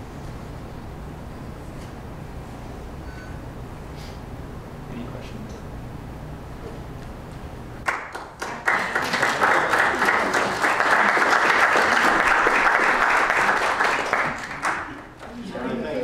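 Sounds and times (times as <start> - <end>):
audience applauding: 7.8 - 15.4.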